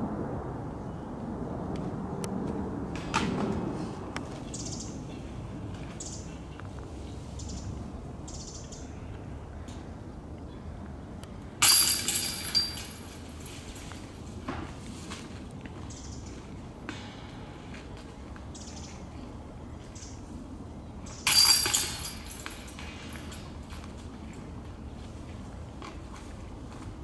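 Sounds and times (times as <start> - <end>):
disc hitting metal basket chains: 11.6 - 13.8, 21.2 - 23.6.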